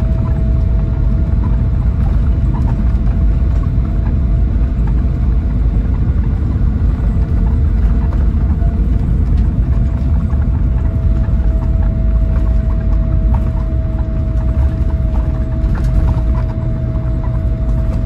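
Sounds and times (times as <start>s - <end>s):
bus engine rumble: 0.0s - 18.0s
thin whine: 0.0s - 18.0s.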